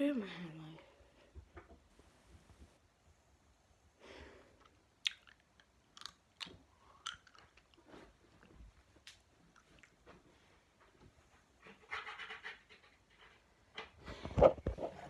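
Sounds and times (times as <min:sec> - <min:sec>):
chewing and lip smacks: 0:04.6 - 0:10.0.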